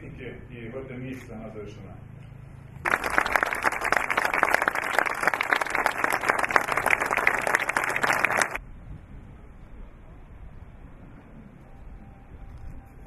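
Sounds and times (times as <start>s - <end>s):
audience applauding: 2.8s - 8.6s.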